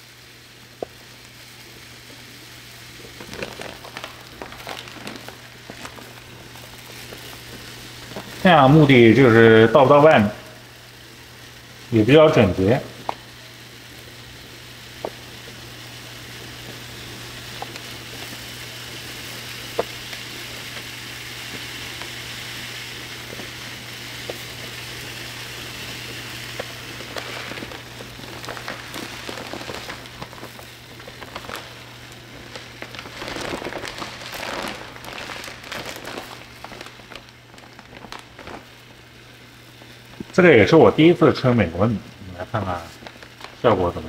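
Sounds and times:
rice pouring into plastic bin: 0:03.1 - 0:10.4, 0:16.8 - 0:39.1
bag rustling: 0:03.2 - 0:08.4, 0:25.9 - 0:39.2.

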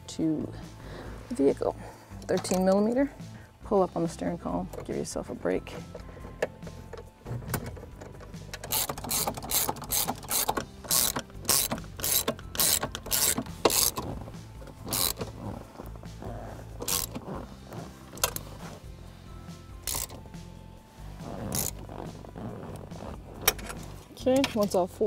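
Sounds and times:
socket ratchet clicking: 0:06.3 - 0:15.6, 0:16.8 - 0:17.3, 0:19.8 - 0:20.3, 0:21.3 - 0:22.8.

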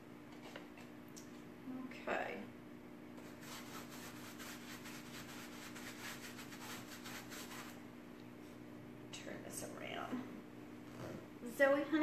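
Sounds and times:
paintbrush scratching on fabric: 0:03.2 - 0:07.8.

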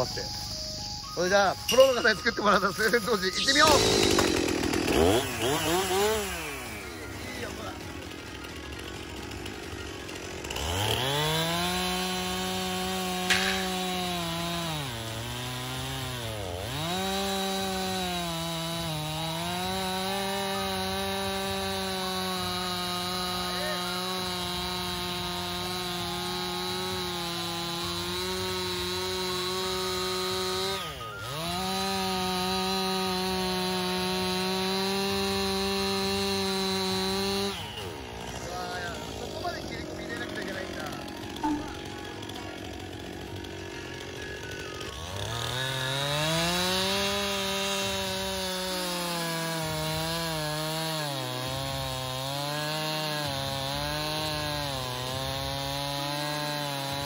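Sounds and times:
chainsaw cutting log: 0:00.0 - 0:57.0.

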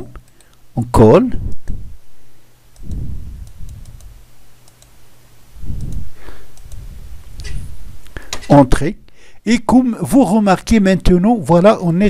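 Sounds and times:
steady low hum: 0:00.0 - 0:12.0
mouse and keyboard clicks: 0:05.8 - 0:06.9.

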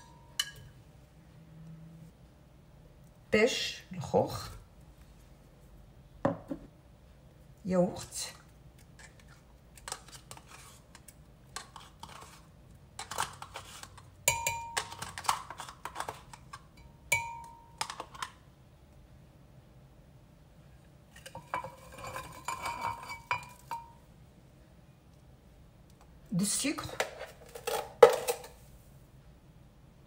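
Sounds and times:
clinks on glass: 0:16.8 - 0:17.6.

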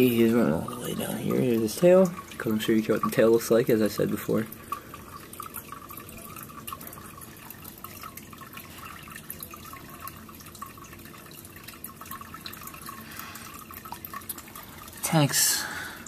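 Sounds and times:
aquarium water trickling and bubbling: 0:00.0 - 0:16.0.

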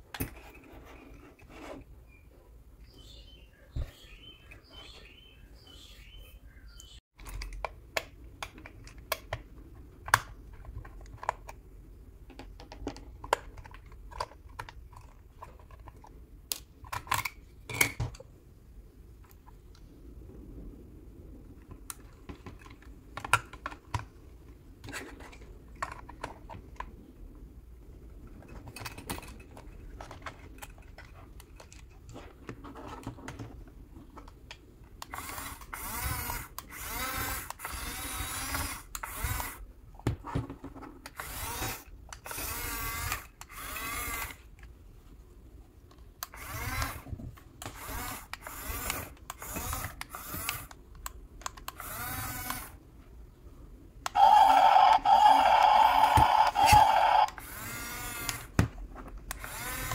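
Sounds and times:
small electric gear motors whining: 0:35.1 - 0:39.6, 0:41.2 - 0:44.4, 0:51.8 - 0:52.8, 0:54.1 - 0:58.5, 0:59.3 - 0:59.9
plastic toy clicks: 0:47.6 - 0:52.8, 0:54.1 - 0:58.5.

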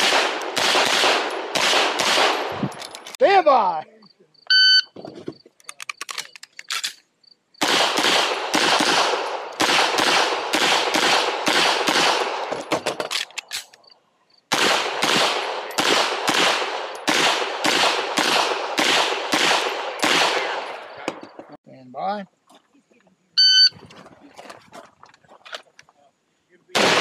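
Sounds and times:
pistol shots: 0:00.0 - 0:02.7, 0:07.6 - 0:12.8, 0:14.5 - 0:21.1, 0:26.8 - 0:27.0
gun handling clicks: 0:05.6 - 0:07.0, 0:13.0 - 0:13.9.

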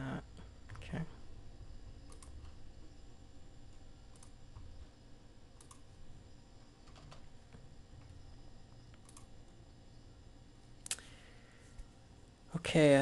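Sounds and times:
faint low hum: 0:00.0 - 0:13.0
computer mouse clicks: 0:02.0 - 0:02.6, 0:03.7 - 0:04.7, 0:05.6 - 0:05.9, 0:08.9 - 0:09.3.

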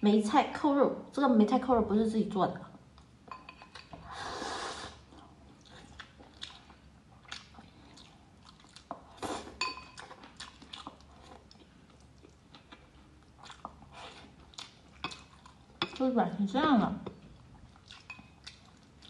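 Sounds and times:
chewing with mouth smacks: 0:05.0 - 0:16.0, 0:17.0 - 0:19.0
chopsticks clinking on glass bowl: 0:09.6 - 0:10.0.

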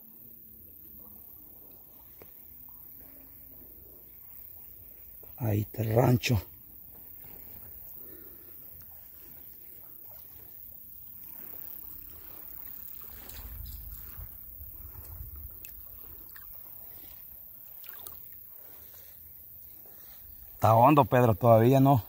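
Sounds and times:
faint splashes: 0:12.1 - 0:19.2
water sloshing around wader: 0:12.1 - 0:20.6.

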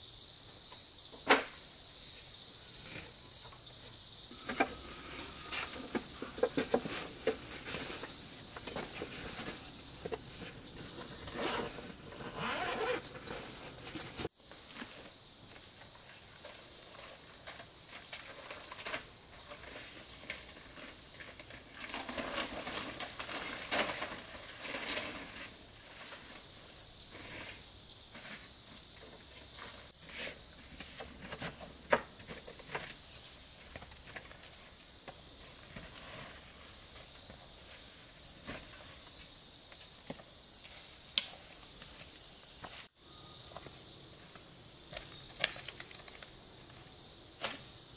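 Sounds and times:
forest insects trilling: 0:00.0 - 0:47.9
rustling: 0:04.3 - 0:15.2, 0:16.0 - 0:39.3.

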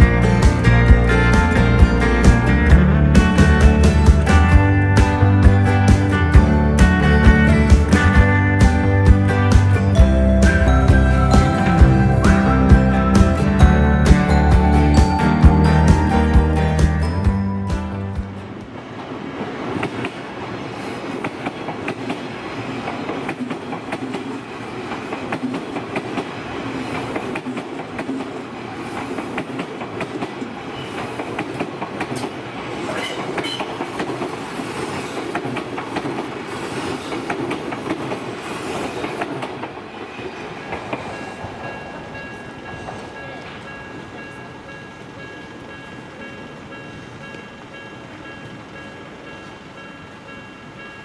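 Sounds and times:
level crossing warning bell: 0:09.4 - 0:18.6, 0:41.1 - 0:51.0
train wheels clattering over rail joints: 0:33.2 - 0:39.9.

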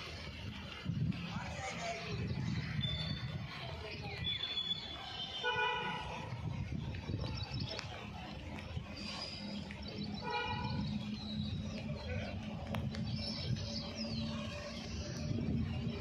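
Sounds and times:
birds chirping: 0:01.4 - 0:16.0.

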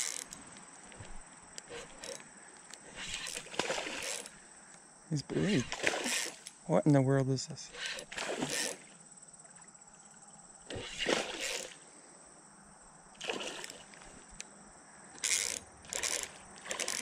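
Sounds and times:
fish splashing at water surface: 0:03.2 - 0:04.3, 0:05.6 - 0:06.4, 0:10.7 - 0:11.8, 0:13.2 - 0:14.0.

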